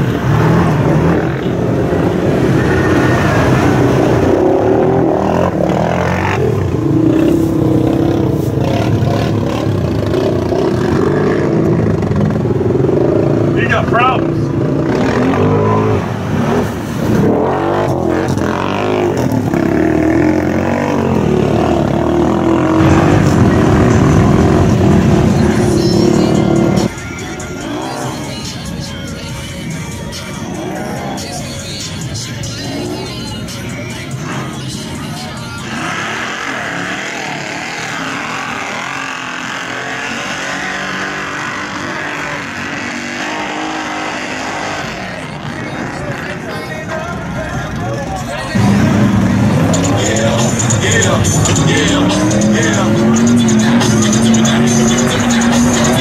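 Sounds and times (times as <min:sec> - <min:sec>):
quad engine revving hard: 0:00.0 - 0:13.6, 0:14.2 - 0:26.9, 0:35.6 - 0:46.4, 0:48.6 - 0:56.0
churned mud and water rushing: 0:00.1 - 0:06.8.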